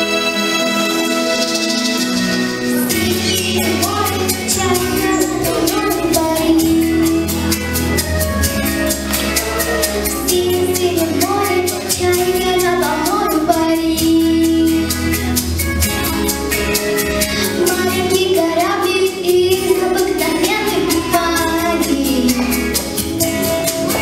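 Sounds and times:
instrumental accompaniment with beat: 0.0 - 24.0
girl singing into microphone: 2.7 - 15.4, 17.0 - 23.1.

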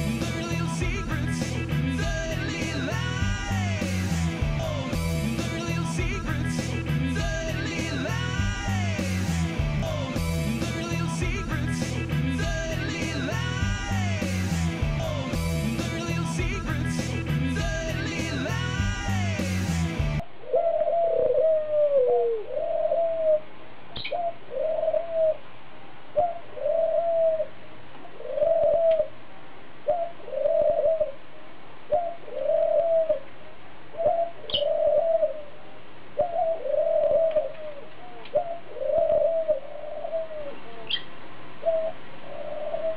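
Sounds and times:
pigeon cooing: 20.4 - 25.4, 26.2 - 29.2, 29.9 - 31.2, 31.9 - 33.3, 34.0 - 42.9.

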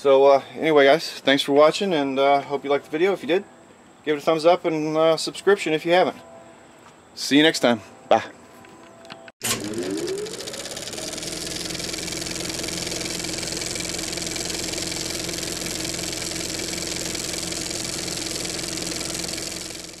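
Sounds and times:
motorcycle engine running: 9.4 - 20.0.

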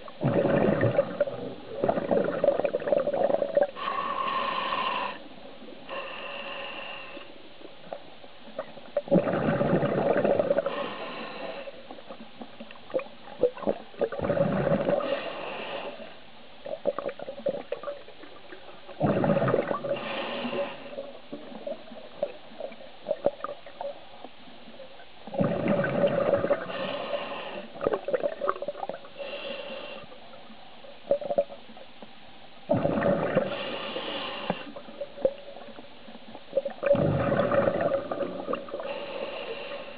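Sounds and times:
bubbling exhalations: 0.2 - 3.9, 9.0 - 10.8, 13.4 - 15.2, 19.0 - 20.6, 25.3 - 26.8, 32.7 - 33.8, 36.6 - 39.0
hissing inhalations: 3.8 - 5.3, 19.9 - 21.1, 26.6 - 27.8, 33.4 - 34.9, 38.8 - 39.9.

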